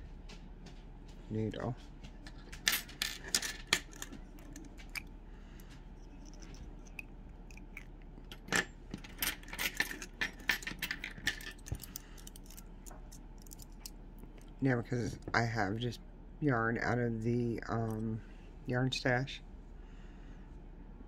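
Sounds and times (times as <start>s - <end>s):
metal tools clicking and clinking: 2.6s - 5.1s, 6.0s - 14.5s.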